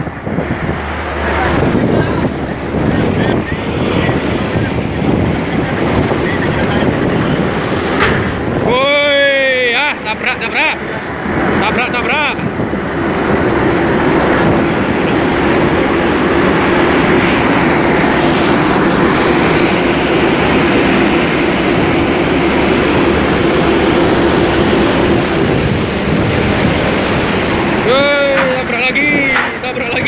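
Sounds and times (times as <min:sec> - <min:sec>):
droning hum: 0:00.0 - 0:30.0
steady rushing noise: 0:00.0 - 0:30.0.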